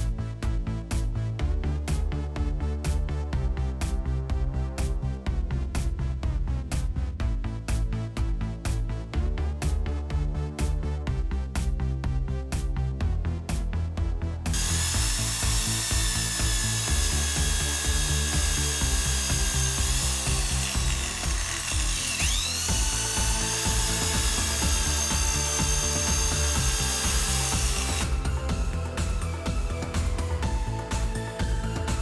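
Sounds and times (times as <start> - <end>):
electronic music with steady beat: 0.0 - 32.0
electric drill whining: 14.5 - 32.0.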